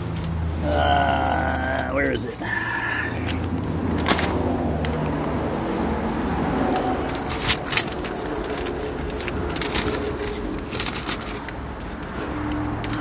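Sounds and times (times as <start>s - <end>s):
clicks and rustles of handling: 3.2s - 13.0s.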